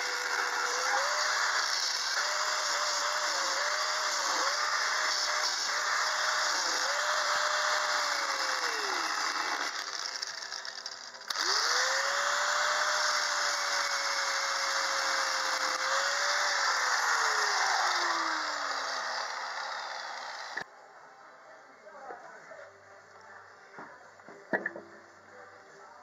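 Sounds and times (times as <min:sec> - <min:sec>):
angle grinder cutting steel: 0:00.0 - 0:20.6.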